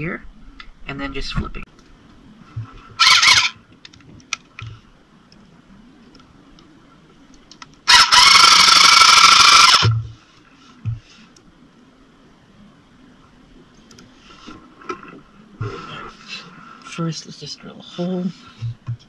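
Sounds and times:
power tool motor whine: 3.0 - 3.5.

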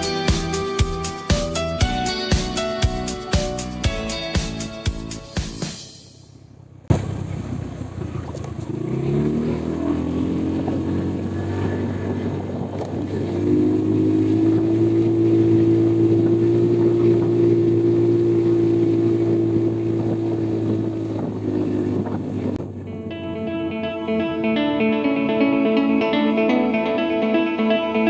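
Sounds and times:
motorcycle engine accelerating: 6.4 - 27.3.

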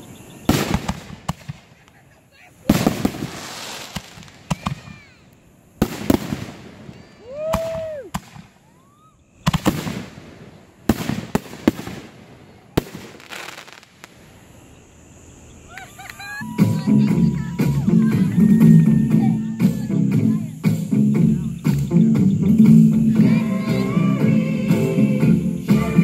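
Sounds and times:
fireworks bangs: 0.0 - 19.9.

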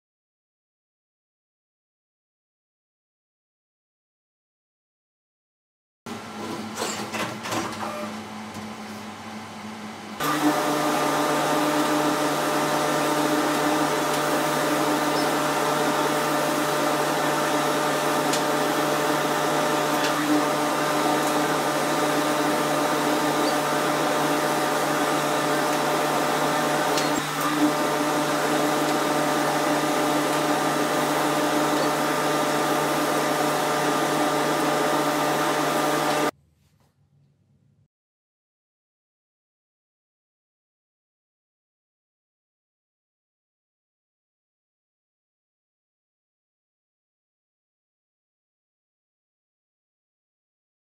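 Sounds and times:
laser cutter whirring: 6.1 - 36.3.

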